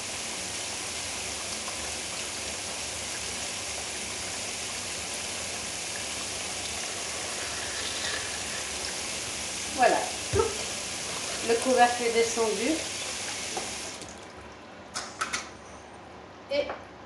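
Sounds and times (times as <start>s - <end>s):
tap water splashing on metal lid: 13.0s - 14.2s.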